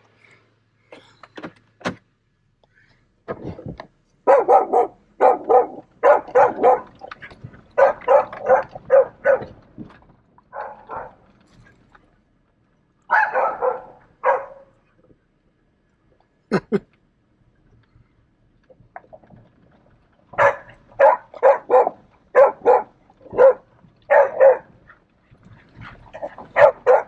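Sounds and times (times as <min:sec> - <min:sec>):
dogs barking: 0:04.2 - 0:09.6, 0:10.5 - 0:11.3, 0:13.1 - 0:14.8, 0:20.3 - 0:25.1, 0:25.7 - 0:27.0.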